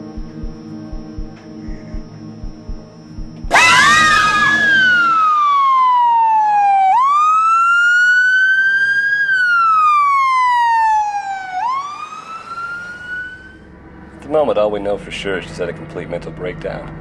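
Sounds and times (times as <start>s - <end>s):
ambulance siren wailing: 3.4s - 13.7s
loud scream: 3.5s - 5.8s.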